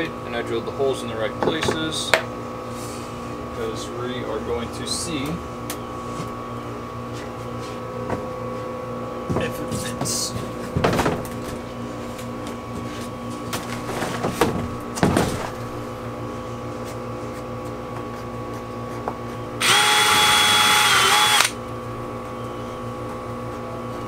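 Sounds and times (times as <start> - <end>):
cordless drill whining: 19.6 - 21.6.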